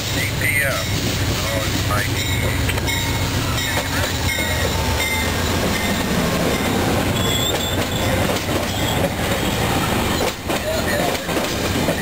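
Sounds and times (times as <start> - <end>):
diesel locomotive rumble: 0.0 - 12.0
train coaches rolling over rails: 0.0 - 12.0
wheel squeals: 2.2 - 10.4.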